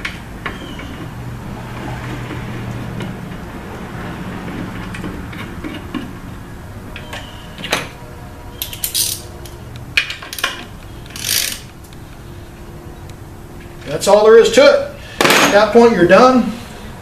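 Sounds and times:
wrench clicking and rasping on bolt: 10.3 - 11.7.

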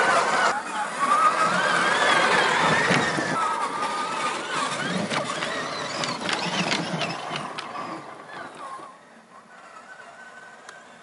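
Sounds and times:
electric motor whining: 0.0 - 11.0
tyres clicking and knocking: 4.5 - 8.8.

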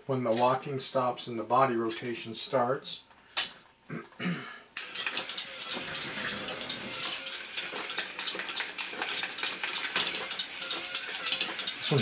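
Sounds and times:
small geared motor: 4.8 - 12.0.

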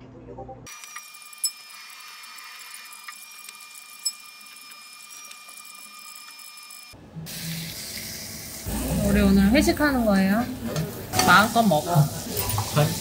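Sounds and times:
meat sizzling on a grill: 7.3 - 10.2, 10.9 - 13.0.

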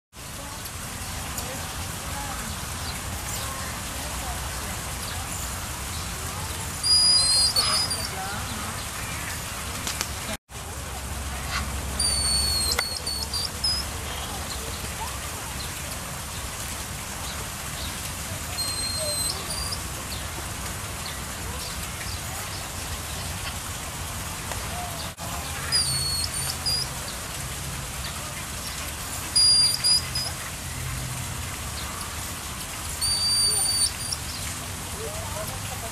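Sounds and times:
monkeys screaming: 6.8 - 8.4, 11.5 - 13.9, 18.6 - 19.9, 25.4 - 26.9, 29.3 - 30.4, 33.0 - 34.3.

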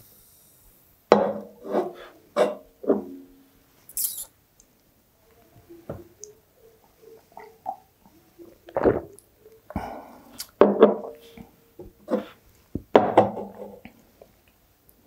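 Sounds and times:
person gulping a drink: 7.3 - 10.6.

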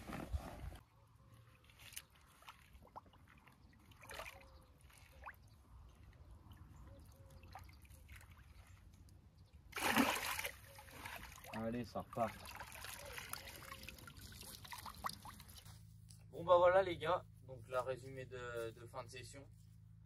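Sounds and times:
water splashing: 1.5 - 6.6, 9.7 - 15.6
water trickling and dripping: 11.0 - 15.6.

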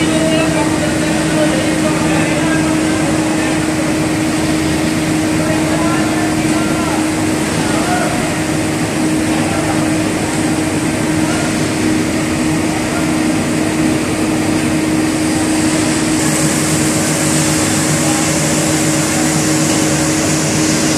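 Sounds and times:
boiler machinery drone: 0.0 - 20.9
hiss: 15.2 - 20.9.

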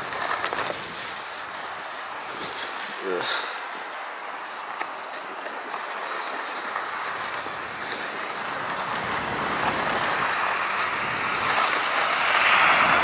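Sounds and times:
skis sliding over snow: 0.0 - 13.0
wind rushing past microphone: 6.7 - 13.0.

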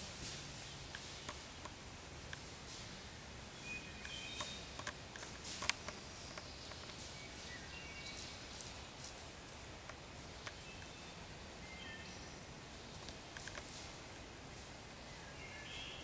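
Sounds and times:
dry leaves crackling: 2.2 - 11.7, 12.5 - 15.7.

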